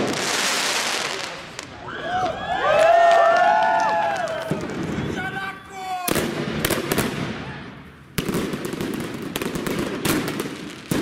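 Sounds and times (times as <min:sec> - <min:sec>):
firework fountain hissing: 0:00.0 - 0:01.9
firework bangs: 0:00.0 - 0:02.3, 0:03.9 - 0:05.4, 0:06.0 - 0:11.0.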